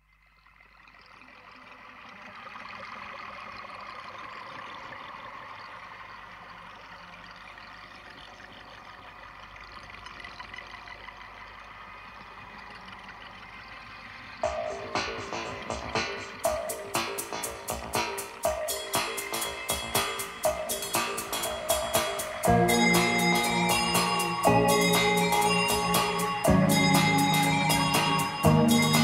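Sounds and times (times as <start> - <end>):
small wheels rolling on asphalt: 0.0 - 16.5.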